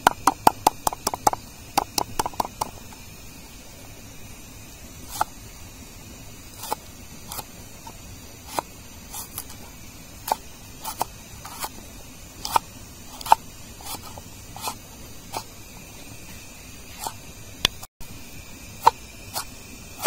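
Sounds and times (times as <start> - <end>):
knife chopping root: 0.0 - 2.8, 6.6 - 7.5, 8.5 - 9.6, 12.4 - 15.5.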